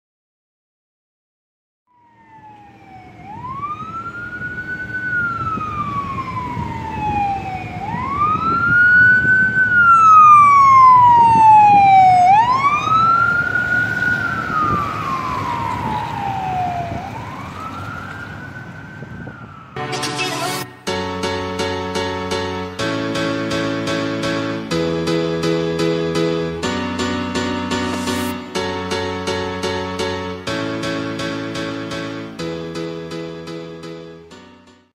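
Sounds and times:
ambulance siren wailing: 0:01.9 - 0:34.6
traffic rumble: 0:02.0 - 0:34.3
music: 0:19.8 - 0:34.9.

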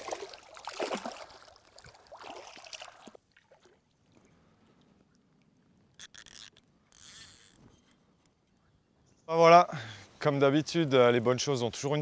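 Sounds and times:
water splashing and sloshing: 0:00.0 - 0:06.9.

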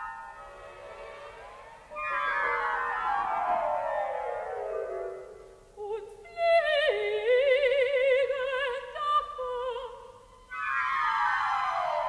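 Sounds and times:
orchestral accompaniment: 0:00.0 - 0:05.6, 0:10.5 - 0:12.0
woman singing with vibrato: 0:05.8 - 0:10.3.

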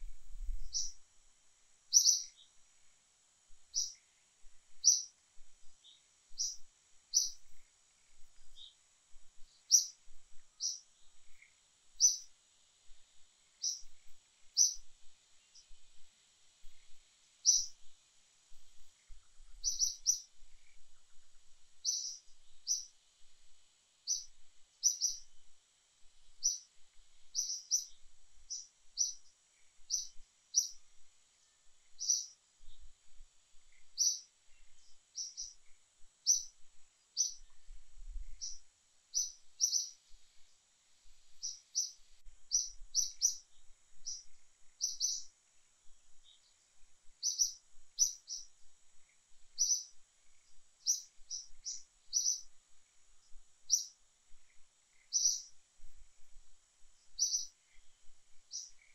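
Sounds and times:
faint steady high hum: 0:00.0 - 0:58.9
small bird chirping: 0:00.0 - 0:58.9.

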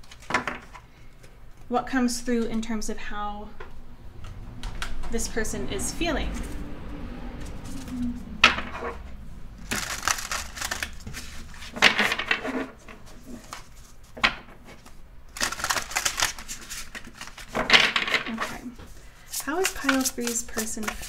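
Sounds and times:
cards shuffling: 0:07.4 - 0:08.2, 0:09.6 - 0:21.0.

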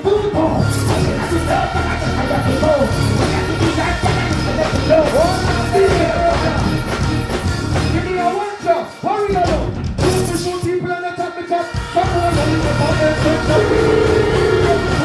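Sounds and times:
loud dancehall music: 0:00.0 - 0:15.0
person singing: 0:12.4 - 0:15.0.

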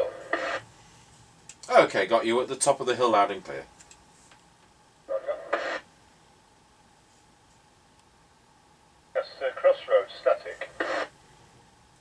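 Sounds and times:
radio static burst: 0:00.0 - 0:00.7, 0:05.1 - 0:05.9, 0:09.2 - 0:11.2.

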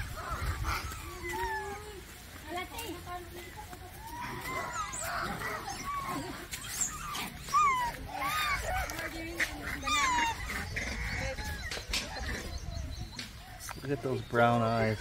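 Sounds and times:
monkeys squeaky calls: 0:00.0 - 0:02.0, 0:03.9 - 0:15.0.

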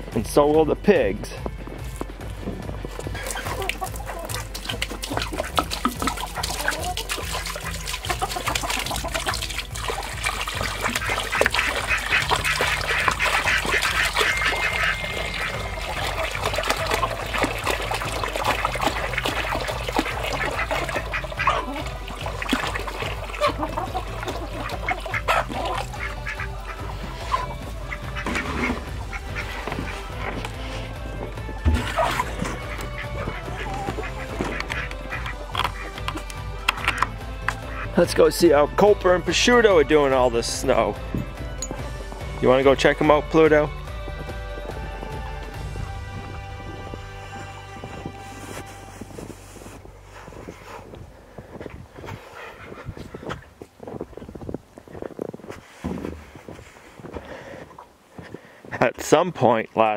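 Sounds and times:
water glugging from plastic jug: 0:02.9 - 0:38.0
ducks quacking and honking: 0:03.0 - 0:53.5.

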